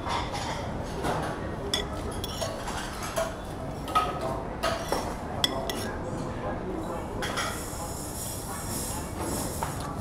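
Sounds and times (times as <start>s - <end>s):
cutlery scraping ceramic plate: 1.7s - 6.0s.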